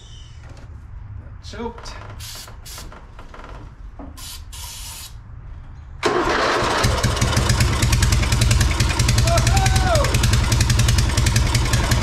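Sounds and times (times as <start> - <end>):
aerosol spray hissing: 4.2 - 5.2
engine cranking and starting: 6.0 - 12.0.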